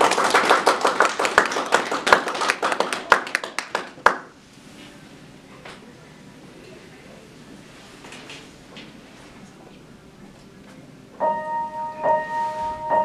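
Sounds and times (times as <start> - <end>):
audience clapping: 0.0 - 4.4.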